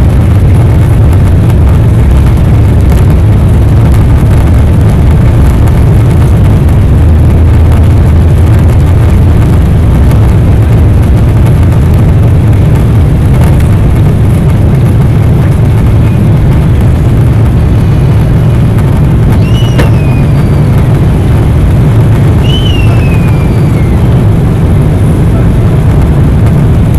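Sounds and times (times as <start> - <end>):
jet engines roaring: 0.0 - 26.9
high squeaks falling in pitch: 19.4 - 20.7.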